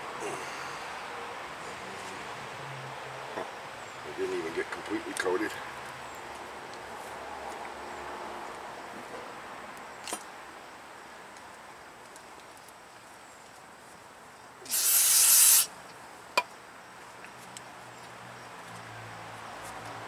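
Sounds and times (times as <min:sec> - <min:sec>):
aerosol spray hissing: 0:14.6 - 0:15.7.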